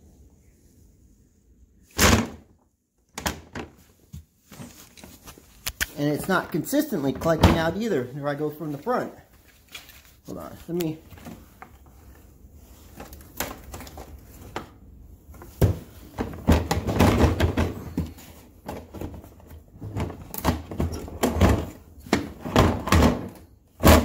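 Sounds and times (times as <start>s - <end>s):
plastic boxes clunking and scraping: 2.0s - 8.1s, 12.8s - 24.0s.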